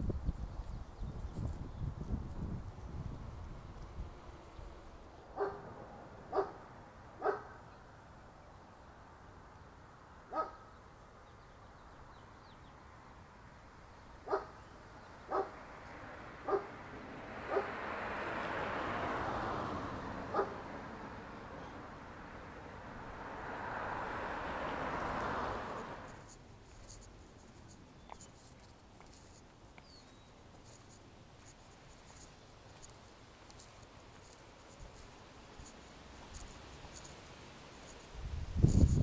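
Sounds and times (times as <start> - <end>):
dog barking: 5.4 - 6.6, 7.2 - 7.6, 10.3 - 10.7, 14.2 - 14.6, 15.3 - 15.6, 16.4 - 16.8, 17.5 - 17.8, 20.3 - 20.6.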